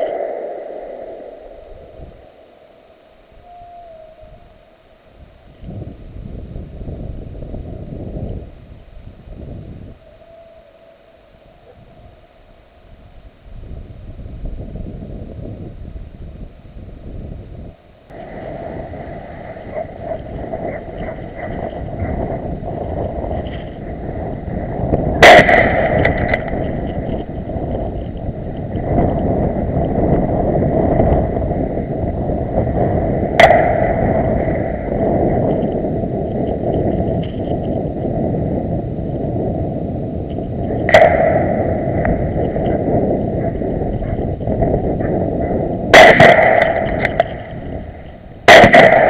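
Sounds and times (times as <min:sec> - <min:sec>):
steady low rumble: 0:00.0 - 0:49.0
gunshots with echo: 0:25.2 - 0:27.0, 0:33.4 - 0:34.8, 0:40.9 - 0:44.2, 0:45.0 - 0:47.5, 0:48.5 - 0:49.0.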